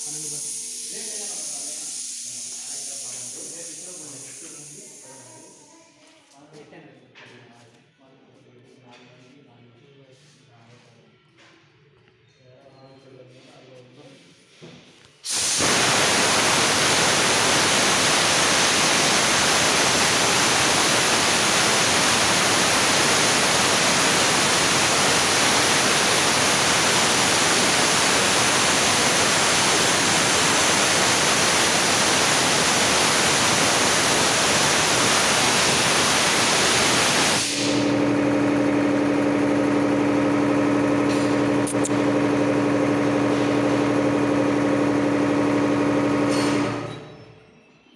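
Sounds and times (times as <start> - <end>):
air compressor motor humming: 0.0 - 5.7, 15.2 - 47.0
compressed air hissing out: 0.0 - 5.7, 15.2 - 38.0.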